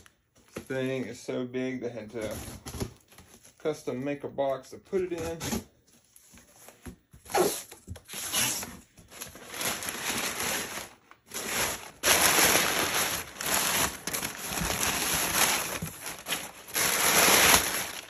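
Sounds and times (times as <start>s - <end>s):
packing paper crinkling: 8.0s - 18.0s.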